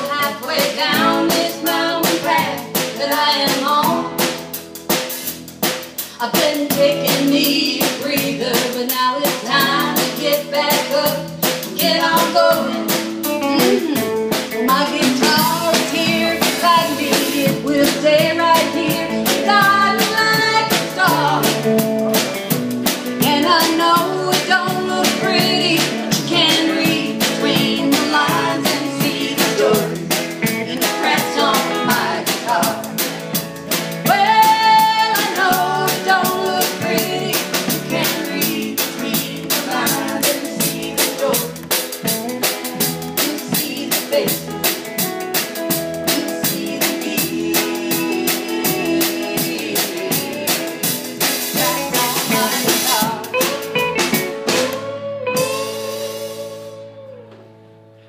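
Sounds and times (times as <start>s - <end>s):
country band playing live: 0.0s - 58.0s
upright bass slapped and plucked: 12.6s - 16.2s.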